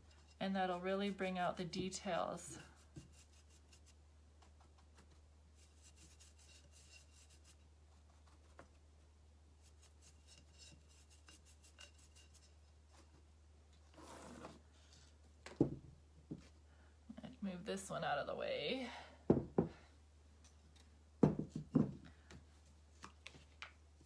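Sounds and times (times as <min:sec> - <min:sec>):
brush scratching and ticking: 0:00.0 - 0:08.8, 0:09.6 - 0:13.1.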